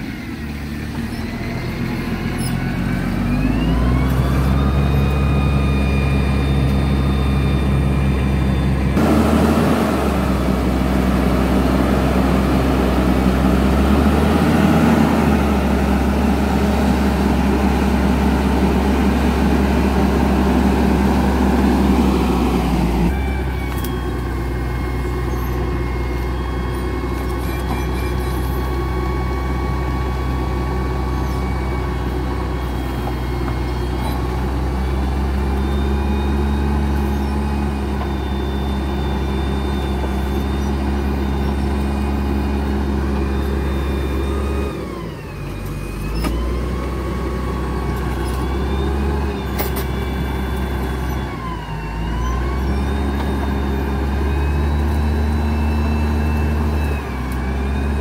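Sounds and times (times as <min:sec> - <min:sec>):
diesel engine running hard: 0:00.0 - 0:58.0
high whine: 0:02.0 - 0:26.4.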